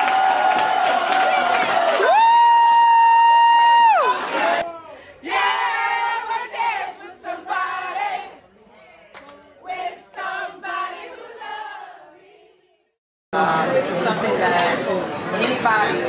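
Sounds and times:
group singing unaccompanied: 5.2s - 13.7s.

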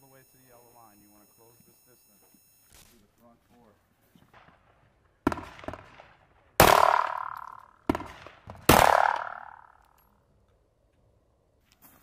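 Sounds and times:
pistol shots: 4.3s - 9.8s
bullets striking steel targets: 5.2s - 10.2s.

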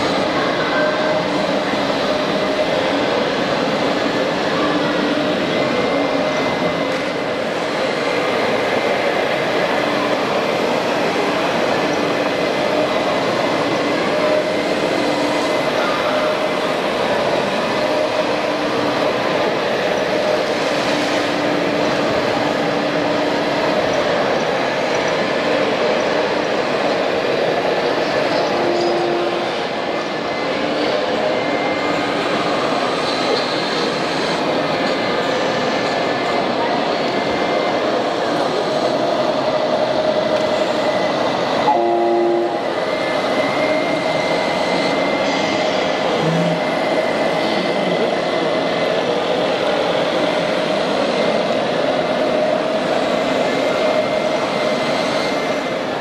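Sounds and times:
hall noise: 34.3s - 54.6s
short horn blast: 41.7s - 42.6s.

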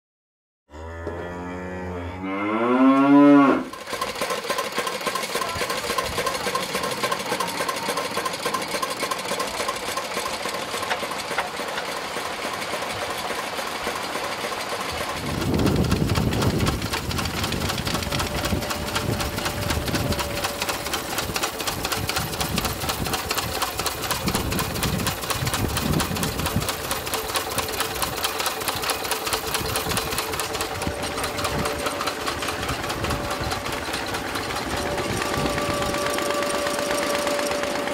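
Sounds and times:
deep uneven engine throbbing: 1.0s - 37.9s
stationary engines clattering: 3.7s - 37.9s
intro music tune: 30.9s - 37.9s.

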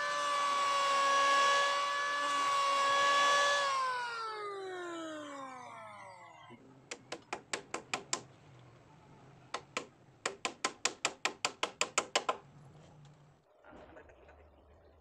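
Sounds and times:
hammer driving nail into wood: 6.9s - 8.3s, 9.6s - 12.4s.

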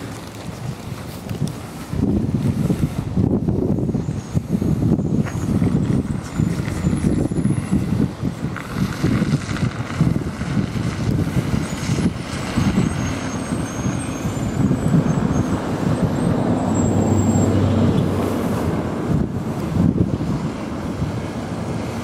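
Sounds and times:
traffic noise: 0.0s - 22.0s
vehicle engine humming: 0.0s - 22.0s
wind rumbling on microphone: 0.0s - 22.0s.

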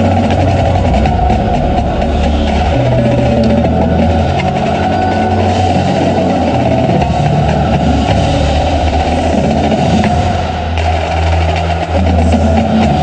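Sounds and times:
bass drums: 0.0s - 13.0s
marching snare drum: 0.0s - 13.0s
sustained low bass notes: 0.0s - 13.0s
tenor drums: 0.0s - 13.0s.

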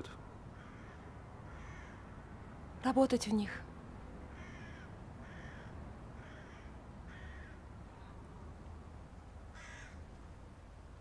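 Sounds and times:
crow cawing: 0.5s - 2.2s, 4.3s - 7.6s, 9.5s - 10.0s.

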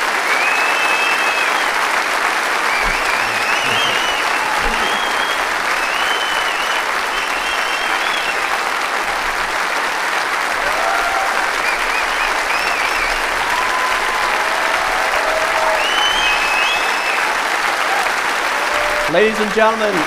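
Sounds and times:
large audience applauding: 0.0s - 20.0s
faint high calls: 2.6s - 8.6s.

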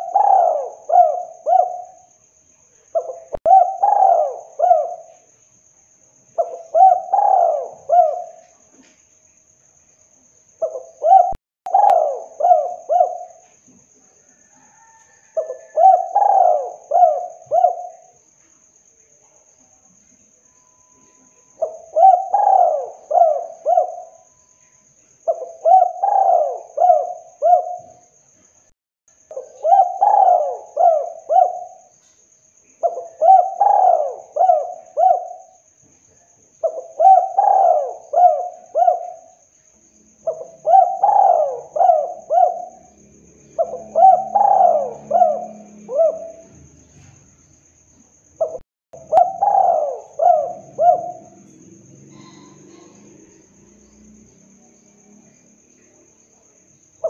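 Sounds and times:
dove cooing: 0.0s - 2.1s, 3.0s - 5.2s, 6.4s - 8.5s, 10.6s - 13.5s, 14.6s - 18.2s, 21.6s - 24.4s, 25.3s - 28.0s, 29.3s - 31.9s, 32.8s - 35.6s, 36.6s - 39.4s, 40.2s - 47.1s, 48.4s - 53.5s.

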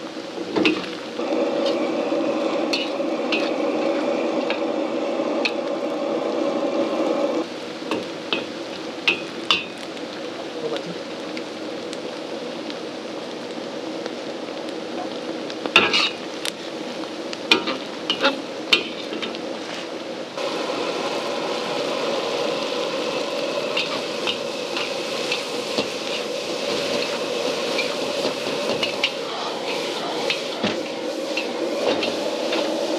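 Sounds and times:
fish frying in hot oil: 0.0s - 32.9s
wok stir-fry sizzling: 0.0s - 32.9s
metal spatula scraping a wok: 2.6s - 4.0s, 15.8s - 16.2s.

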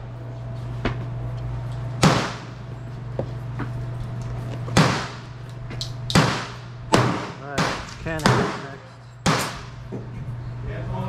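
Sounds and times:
gunshots with echo: 2.0s - 2.6s, 4.8s - 5.2s, 6.1s - 9.7s.

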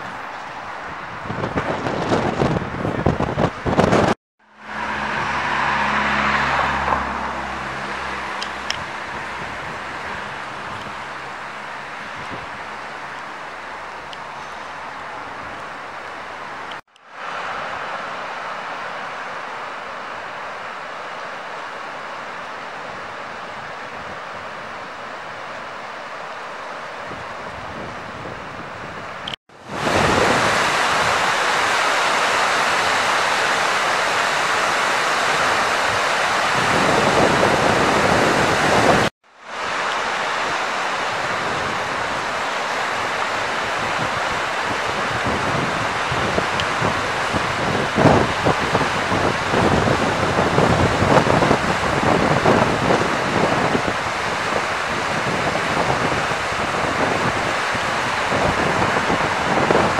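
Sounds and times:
wind buffeting microphone: 0.0s - 4.2s, 5.0s - 13.2s, 27.0s - 59.9s
river water rushing: 0.0s - 59.9s.

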